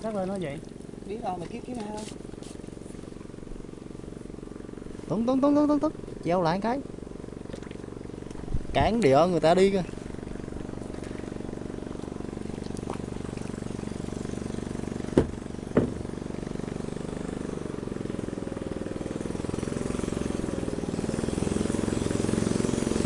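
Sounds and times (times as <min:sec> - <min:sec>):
small engine running: 0:00.0 - 0:23.0
sharp knocks: 0:15.0 - 0:16.1.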